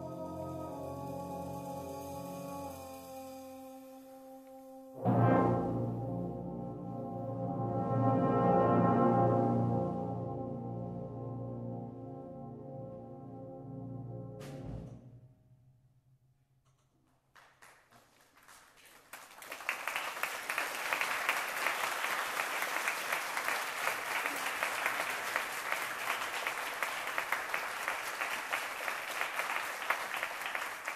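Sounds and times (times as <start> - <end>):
room of people clapping: 16.8 - 30.9.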